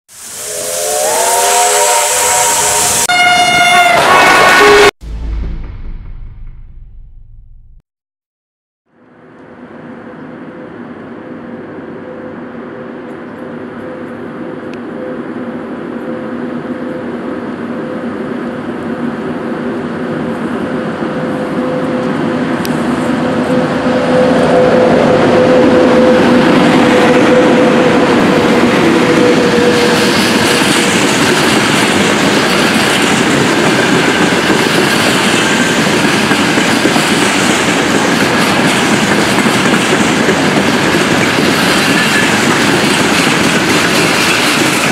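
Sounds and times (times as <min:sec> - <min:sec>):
electric locomotive hum: 0:00.1 - 0:07.8, 0:09.0 - 0:44.9
freight wagons rumbling on rails: 0:21.2 - 0:44.9.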